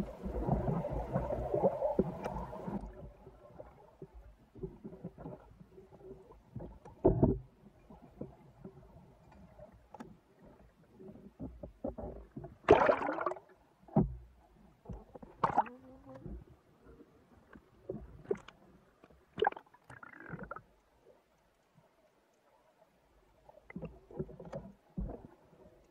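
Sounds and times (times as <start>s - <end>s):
water gurgling: 0.0s - 3.8s, 11.9s - 13.5s, 15.2s - 16.4s, 19.3s - 20.7s
underwater rush: 0.0s - 5.6s, 12.6s - 13.5s
muffled underwater knocks and clicks: 0.0s - 16.6s, 17.4s - 20.9s, 23.6s - 25.9s.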